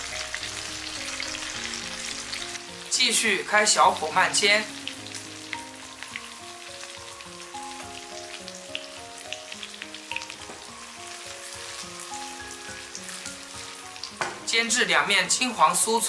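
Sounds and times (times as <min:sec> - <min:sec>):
soft background tune: 0:00.0 - 0:16.0
tofu sizzling in oil: 0:00.0 - 0:16.0.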